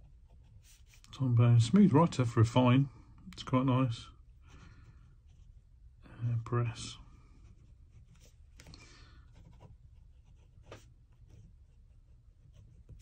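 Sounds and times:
ballpoint pen scratching on paper: 0:09.3 - 0:13.0.

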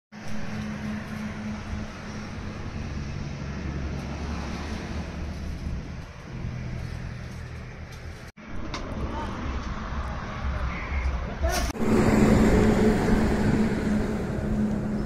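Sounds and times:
engine running with low hum: 0:00.2 - 0:08.3, 0:11.8 - 0:15.0.

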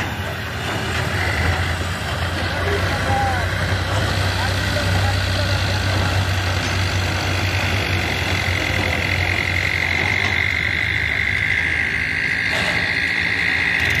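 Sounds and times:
diesel tractor engine running: 0:00.0 - 0:14.0
high-pitched trill: 0:08.4 - 0:14.0.

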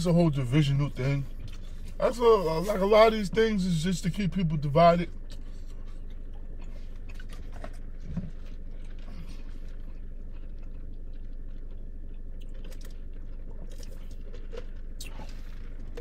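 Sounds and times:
low cabin hum: 0:00.0 - 0:16.0
man chewing: 0:01.2 - 0:02.0, 0:05.1 - 0:16.0.

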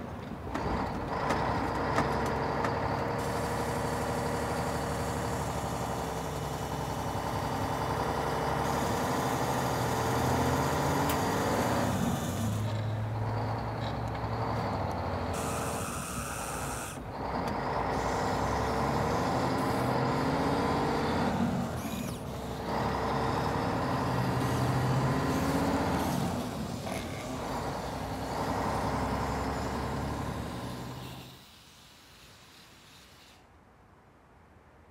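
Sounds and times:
truck engine running: 0:00.4 - 0:31.0
air brake hiss: 0:15.4 - 0:17.0, 0:30.9 - 0:33.5.

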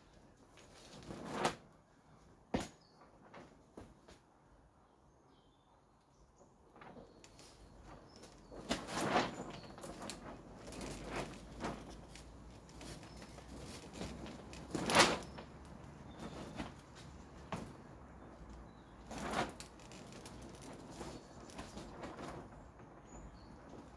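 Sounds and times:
clothing swishing: 0:07.5 - 0:15.5.

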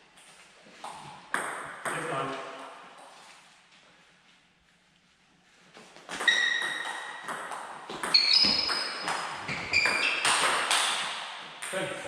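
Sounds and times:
shoes squeaking on floor: 0:05.7 - 0:07.3, 0:07.9 - 0:10.5.

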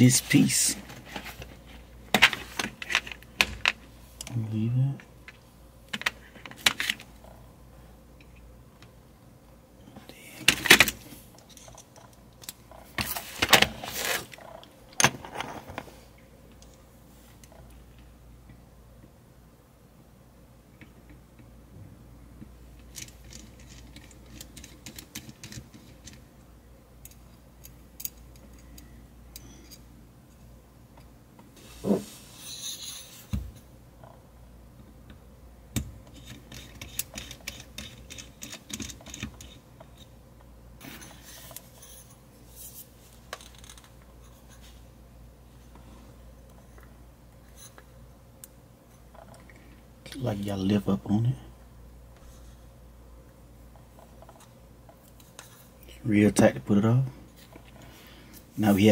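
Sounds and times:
small clicks and scrapes: 0:22.8 - 0:26.2, 0:36.0 - 0:40.1, 0:53.7 - 0:56.0.

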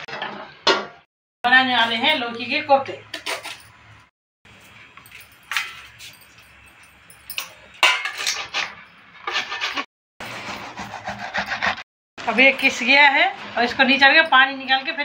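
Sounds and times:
gourd rasping on metal grater: 0:09.3 - 0:11.8.

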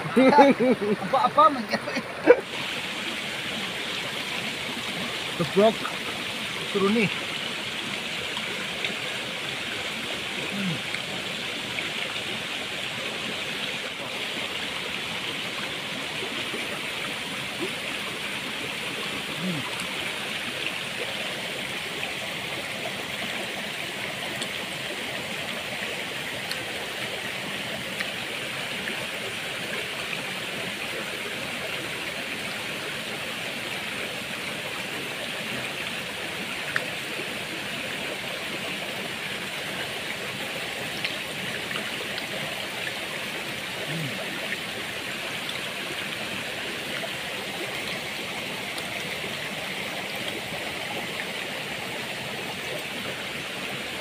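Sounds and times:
stream rushing over stones: 0:00.0 - 0:54.0.

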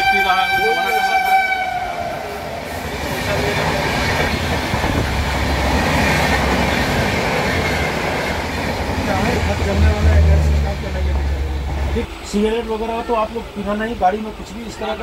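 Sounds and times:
train wheels on rails: 0:00.0 - 0:15.0
low rumble: 0:09.0 - 0:12.1.

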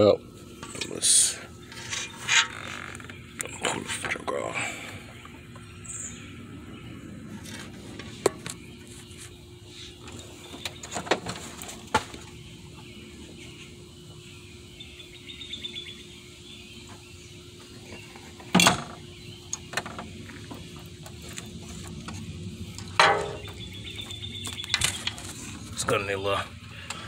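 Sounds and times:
faint steady hum: 0:00.0 - 0:27.0
metallic knocks and clanks: 0:23.0 - 0:23.6.

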